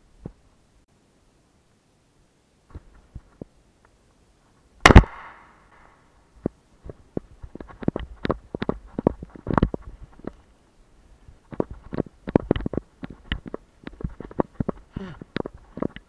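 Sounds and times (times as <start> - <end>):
shotgun shot with echo: 4.8 - 5.8.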